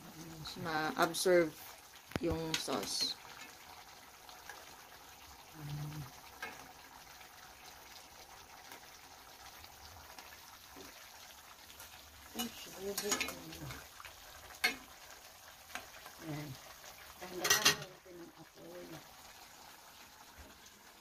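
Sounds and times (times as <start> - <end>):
sauce simmering: 0.0 - 21.0
spoon clinking against pan: 17.4 - 17.8.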